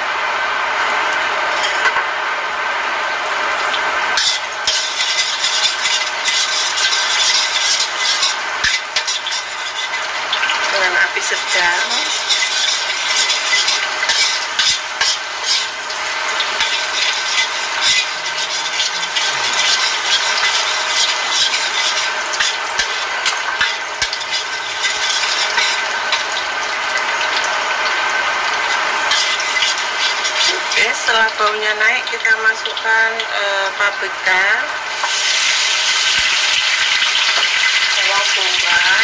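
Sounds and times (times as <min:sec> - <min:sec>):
garlic sizzling in hot oil: 0:00.0 - 0:39.0
metal spoon scraping a pan: 0:01.5 - 0:02.0, 0:04.2 - 0:26.4, 0:28.6 - 0:31.1.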